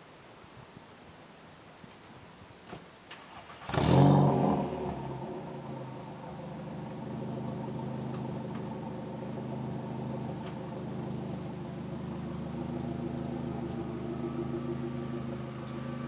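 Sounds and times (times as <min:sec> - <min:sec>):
car engine idling: 0:03.2 - 0:16.0.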